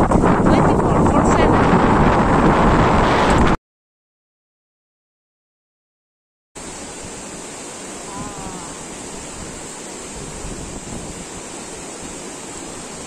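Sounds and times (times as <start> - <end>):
river rushing over rocks: 6.6 - 13.0.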